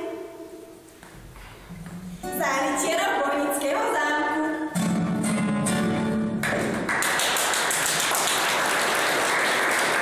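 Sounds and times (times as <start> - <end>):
song with acoustic guitar: 4.4 - 6.9
audience clapping: 6.3 - 10.0.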